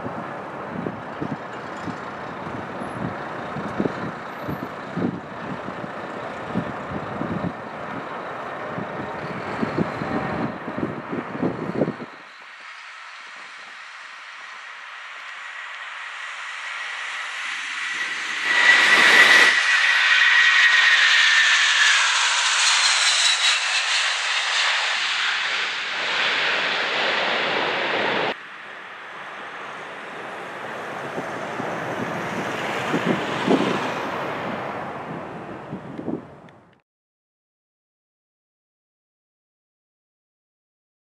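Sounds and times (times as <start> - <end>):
jet engines roaring at takeoff: 0.0 - 36.8.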